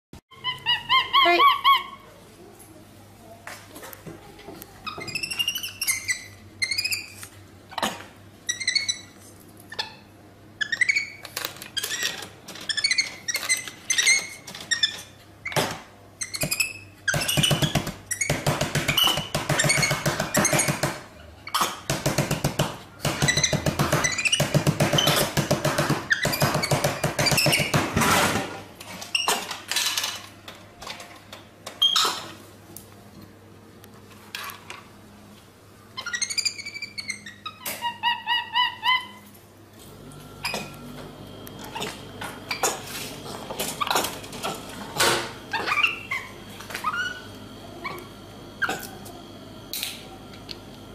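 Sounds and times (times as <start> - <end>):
monkey squeaks: 0.3 - 2.0, 4.8 - 7.9, 8.5 - 11.2, 11.8 - 15.6, 16.2 - 20.8, 23.2 - 25.3, 26.1 - 27.7, 36.0 - 39.2, 45.5 - 48.0.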